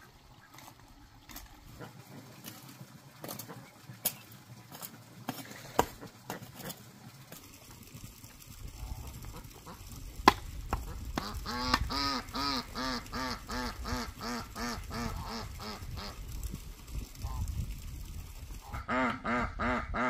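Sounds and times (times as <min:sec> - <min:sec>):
waterfowl calling: 0:10.8 - 0:16.2, 0:18.6 - 0:20.0.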